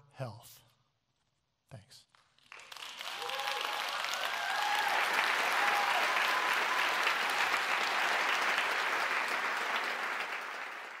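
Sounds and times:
audience applauding: 2.4s - 11.0s.

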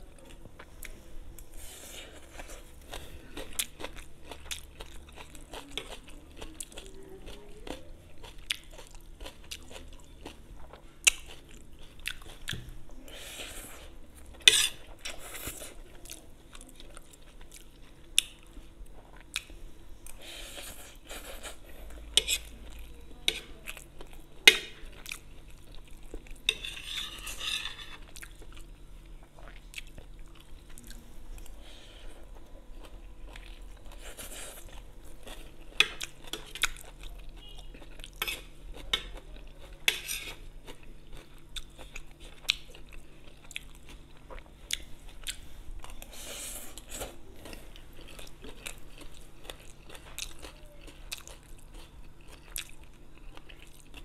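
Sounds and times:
chewing noodles: 0.2s - 54.0s.

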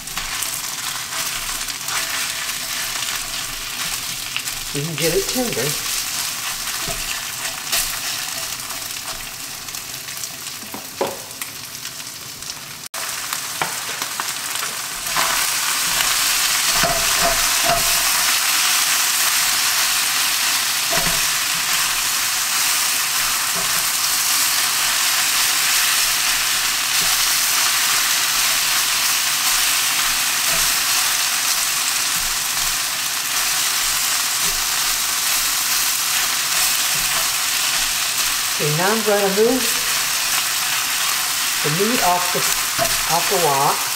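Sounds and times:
spatula stirring in a wok: 0.0s - 10.2s, 15.0s - 38.6s
meat sizzling in a wok: 0.0s - 43.9s.

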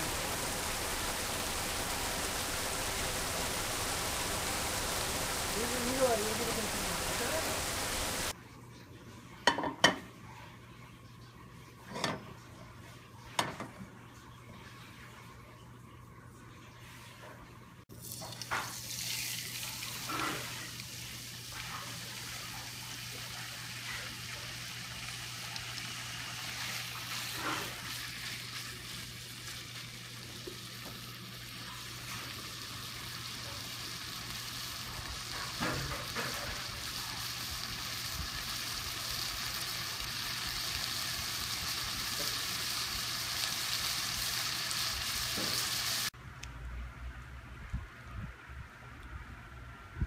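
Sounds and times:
meat and onions sizzling in pan: 0.0s - 8.4s, 18.1s - 46.2s.

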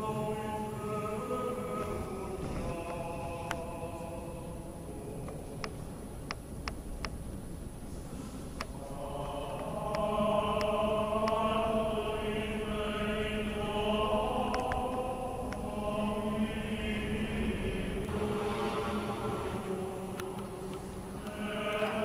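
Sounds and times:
voices chanting long notes: 0.0s - 5.6s, 8.7s - 22.0s
sharp clicks: 5.2s - 7.2s, 8.6s - 11.5s, 14.3s - 15.7s.

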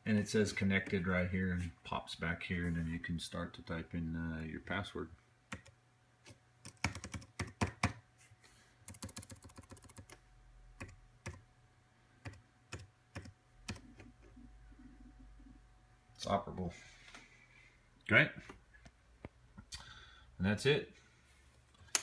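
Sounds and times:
keyboard keys clicking: 6.6s - 7.9s.

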